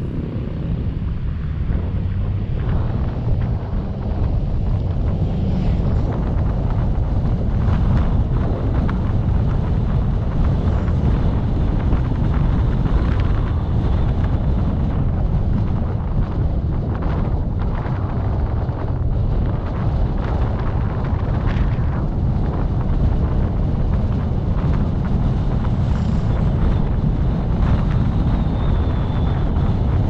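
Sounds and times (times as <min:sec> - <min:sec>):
moving vehicle rumble: 0:00.0 - 0:30.0
wind buffeting microphone: 0:00.0 - 0:30.0.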